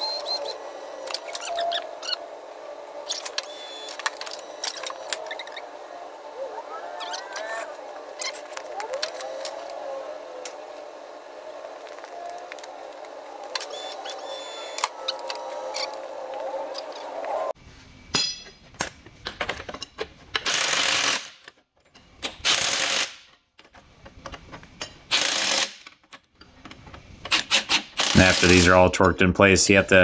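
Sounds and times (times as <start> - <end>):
sped-up shop noise: 0.0 - 17.6
impact wrench bursts: 13.5 - 15.9, 20.3 - 21.5, 22.2 - 23.3, 25.0 - 25.9, 27.2 - 28.8.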